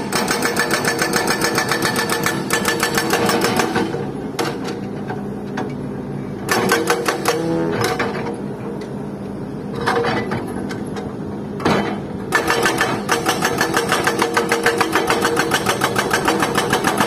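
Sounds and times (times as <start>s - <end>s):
hydraulic breaker hammering rock: 0.0s - 4.8s, 6.5s - 8.2s, 11.6s - 17.0s.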